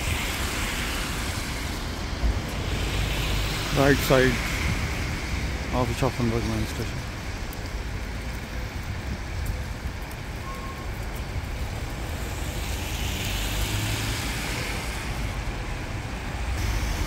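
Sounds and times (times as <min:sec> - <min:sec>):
cars driving past: 0:00.0 - 0:06.4, 0:11.7 - 0:17.0
bus driving past: 0:12.0 - 0:17.0.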